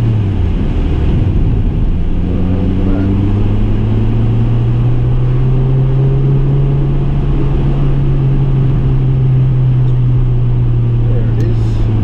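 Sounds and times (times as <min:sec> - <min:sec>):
car engine hum: 0:00.0 - 0:12.0
road noise rumble: 0:00.0 - 0:12.0.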